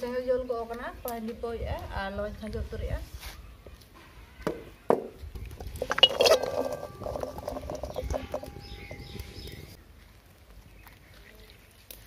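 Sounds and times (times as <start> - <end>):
pan ringing: 5.8 - 9.8.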